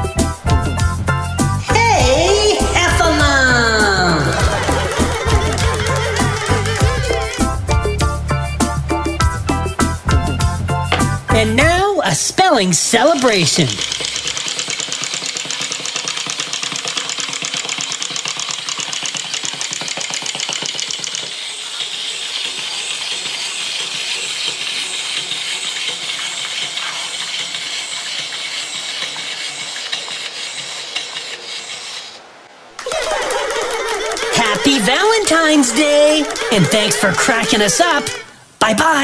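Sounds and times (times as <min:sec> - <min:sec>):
clockwork motors whirring: 0:02.5 - 0:07.8, 0:13.0 - 0:38.3
plastic feet tapping: 0:02.6 - 0:07.9, 0:10.9 - 0:11.4, 0:13.0 - 0:21.5, 0:32.8 - 0:38.3.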